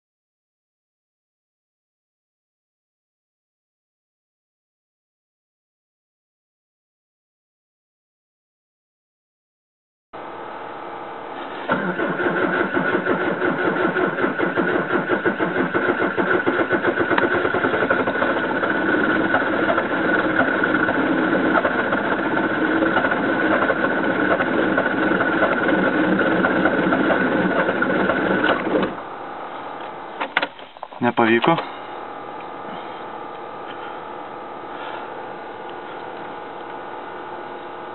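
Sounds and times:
starter motor cranking engine: 0:11.6 - 0:29.0.

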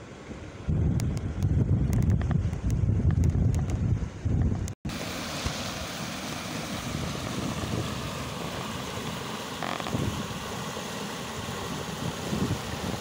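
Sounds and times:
stream rushing over rock: 0:04.9 - 0:13.0.

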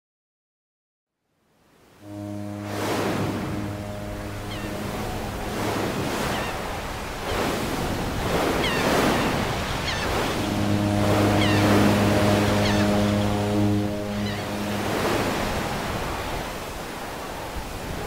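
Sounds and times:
ship's horn deep blast: 0:01.9 - 0:18.0
sea waves washing: 0:02.0 - 0:18.0
gull calling: 0:02.7 - 0:07.6, 0:08.5 - 0:16.3.

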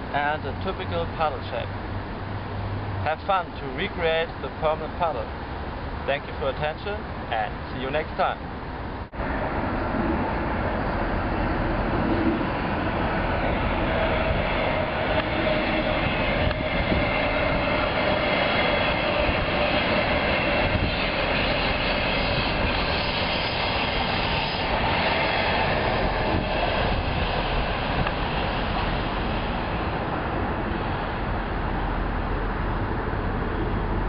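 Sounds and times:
faint whine: 0:00.0 - 0:34.0
train wheels on rails: 0:12.0 - 0:31.0.

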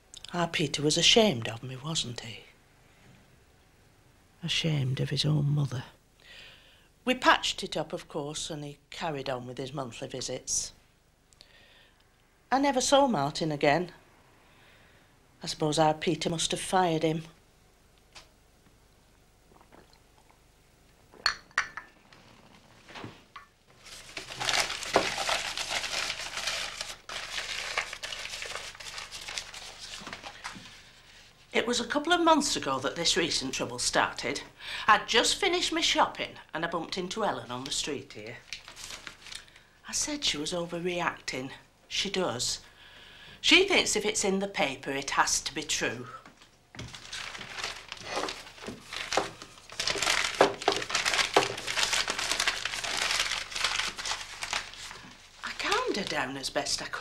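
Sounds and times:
newspaper crumpling: 0:23.7 - 0:31.2, 0:38.4 - 0:39.6, 0:46.8 - 0:56.3
paper crinkling and rustling: 0:23.7 - 0:31.2, 0:38.4 - 0:39.4, 0:46.8 - 0:56.3.

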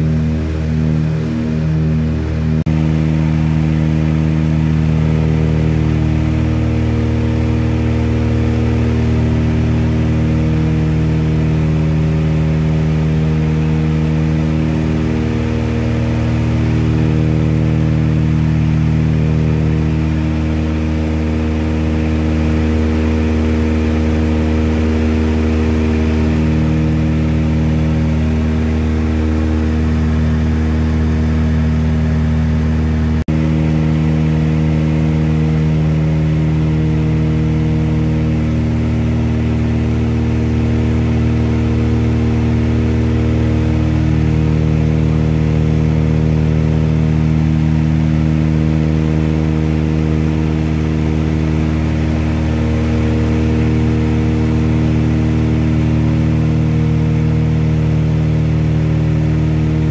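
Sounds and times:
propeller plane engine drone: 0:00.0 - 0:59.9.

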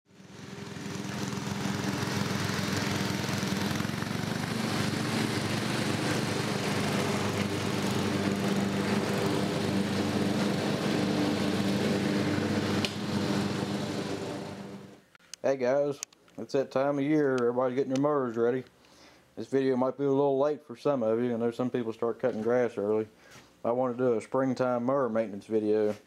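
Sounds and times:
riding lawn mower engine running: 0:00.1 - 0:15.1.

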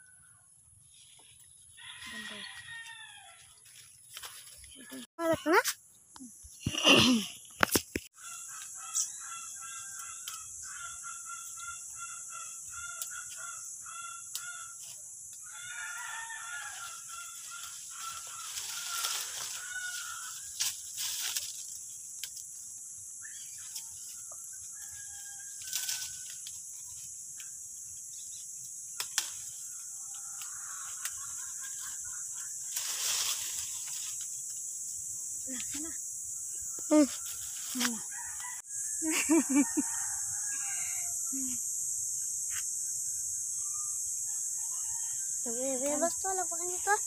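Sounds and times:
leaves and branches rustling: 0:00.9 - 0:05.1, 0:14.3 - 0:34.7, 0:36.9 - 0:38.6
high insect buzz: 0:01.0 - 0:47.0.

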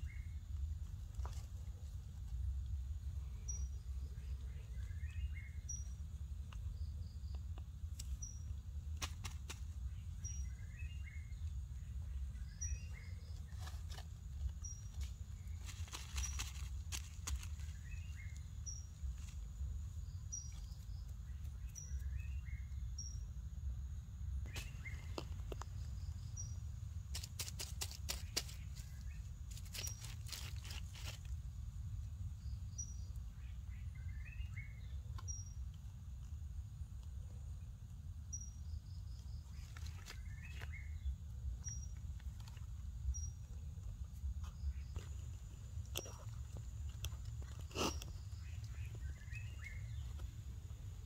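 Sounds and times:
steady low rumble: 0:00.0 - 0:51.0.

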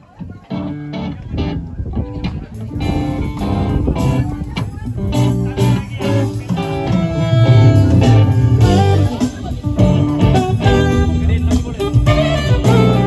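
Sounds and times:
bass: 0:00.0 - 0:13.0
electric guitar: 0:00.4 - 0:13.0
steady drum beat: 0:02.6 - 0:13.0
saxophone: 0:05.1 - 0:13.0.

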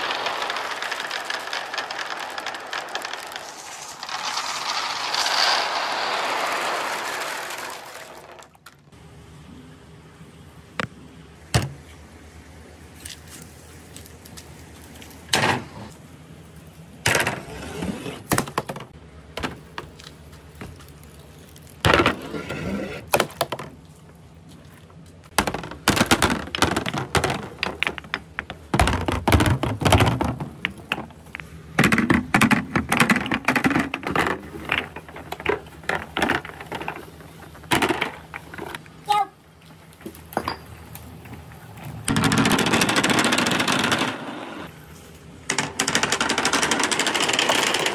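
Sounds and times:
balls clacking together: 0:00.0 - 0:09.0, 0:18.2 - 0:20.8, 0:24.9 - 0:39.0, 0:39.9 - 0:44.7, 0:45.4 - 0:47.9
balls rolling on marble run: 0:00.0 - 0:09.0, 0:21.9 - 0:23.7, 0:25.3 - 0:38.9, 0:40.1 - 0:44.7, 0:45.5 - 0:47.9.

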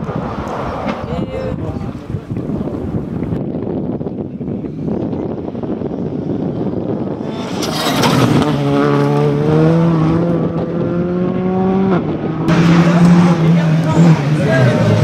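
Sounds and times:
rally car engine accelerating: 0:07.0 - 0:15.0.

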